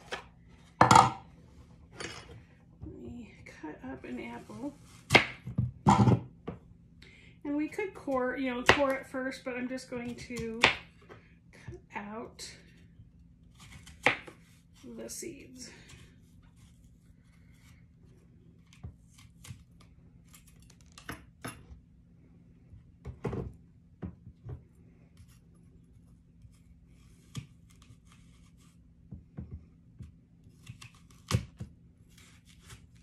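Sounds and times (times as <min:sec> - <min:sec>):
knife cutting apple: 0:05.0 - 0:05.5, 0:13.5 - 0:14.6, 0:18.6 - 0:21.5, 0:25.1 - 0:29.1, 0:29.9 - 0:33.0.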